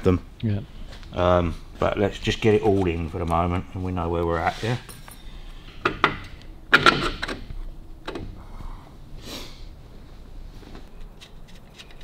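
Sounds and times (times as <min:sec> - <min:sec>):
metal clinks of bolts and tools: 0:04.8 - 0:05.3.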